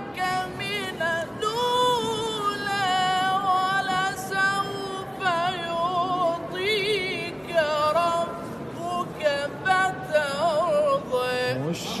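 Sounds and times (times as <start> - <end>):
man reciting melodically: 0.0 - 12.0.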